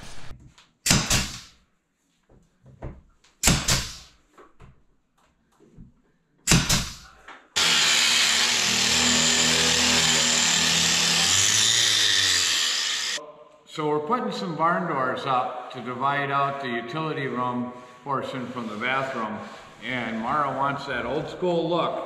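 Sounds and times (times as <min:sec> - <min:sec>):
angle grinder on wood: 0:07.6 - 0:13.2
power drill bursts: 0:07.6 - 0:13.2.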